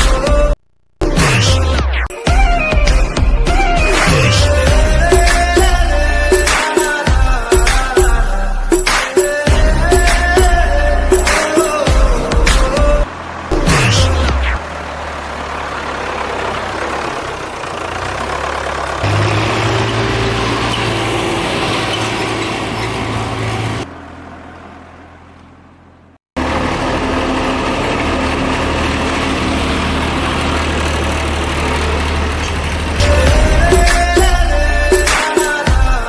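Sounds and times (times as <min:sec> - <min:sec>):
diesel tractor engine running: 0:09.6 - 0:35.2.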